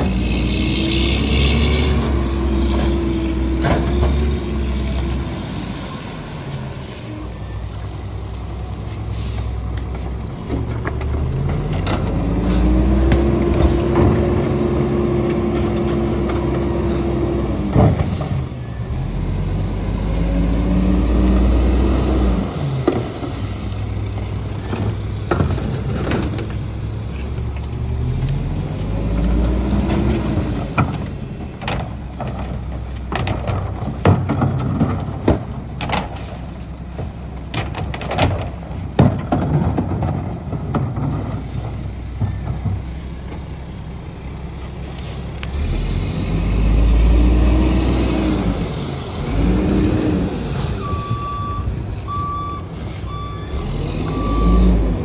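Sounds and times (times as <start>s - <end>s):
clanks and thumps of carts: 0.0s - 5.4s, 8.8s - 19.1s, 21.2s - 47.4s
garbage truck diesel engine revving: 0.0s - 7.0s, 10.1s - 35.8s, 38.6s - 55.0s.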